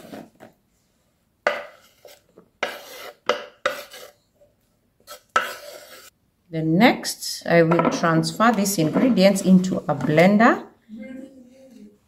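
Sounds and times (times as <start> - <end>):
scraping on wooden cutting board: 1.5 - 4.2, 5.0 - 6.1.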